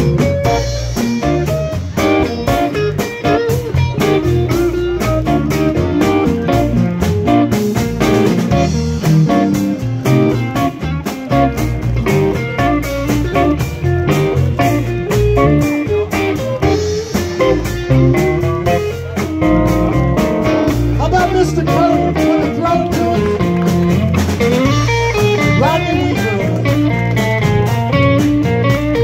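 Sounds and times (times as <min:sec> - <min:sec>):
live blues band: 0:00.0 - 0:29.0.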